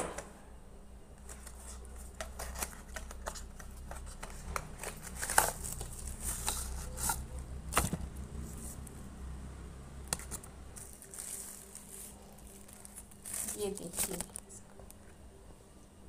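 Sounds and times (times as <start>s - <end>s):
cardboard and plastic rustling: 1.2s - 8.9s, 10.1s - 15.0s.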